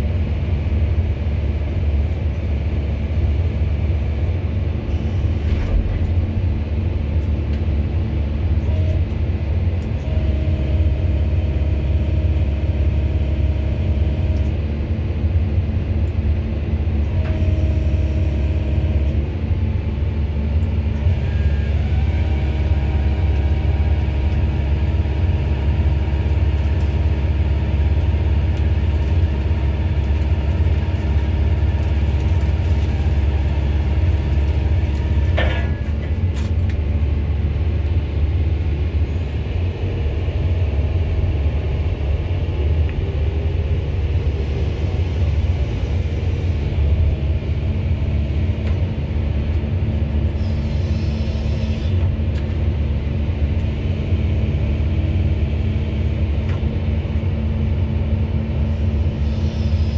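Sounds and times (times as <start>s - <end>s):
hydraulic whine: 0.0s - 15.0s, 16.9s - 19.6s, 20.6s - 38.1s, 50.2s - 52.1s
excavator diesel engine rumble: 0.0s - 59.9s.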